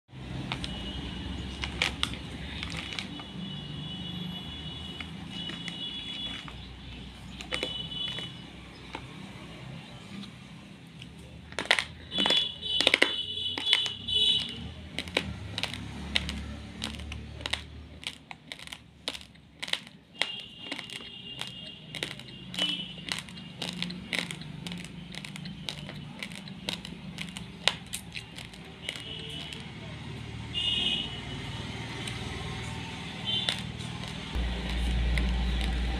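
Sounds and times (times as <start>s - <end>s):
dry rice grains clicking: 0.1s - 3.6s, 4.5s - 9.2s, 11.0s - 29.8s, 33.2s - 35.9s.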